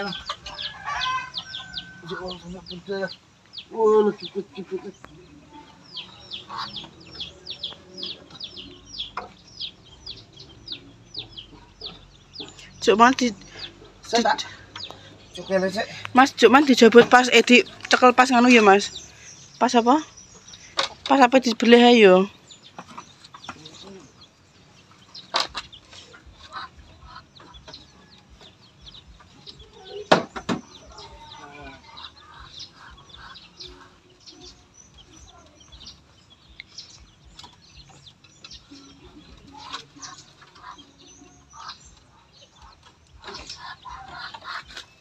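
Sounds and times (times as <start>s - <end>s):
poultry crying: 0.0s - 2.7s, 5.6s - 14.0s, 25.2s - 35.6s, 38.9s - 44.9s
chicks peeping: 0.0s - 45.0s.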